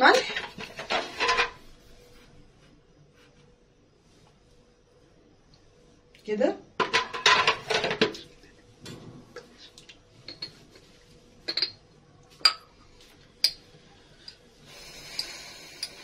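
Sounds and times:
metal spoon clinking dishes: 11.5 - 11.8.

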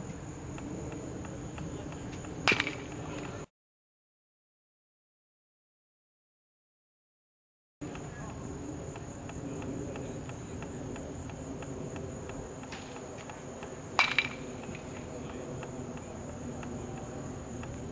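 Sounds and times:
sharp ringing crack: 14.0 - 14.8.

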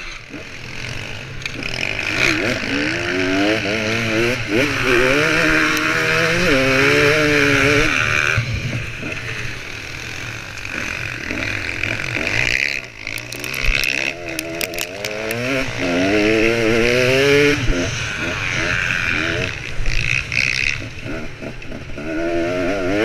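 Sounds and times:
dirt bike engine revving: 0.0 - 23.0
sharp clicks: 13.0 - 15.5.

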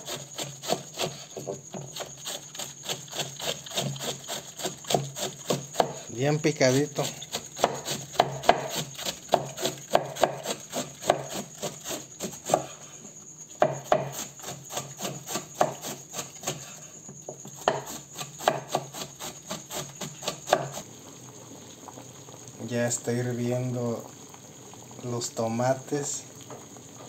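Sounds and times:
knife chopping on cutting board: 7.3 - 12.7, 13.6 - 16.6, 17.6 - 20.8.

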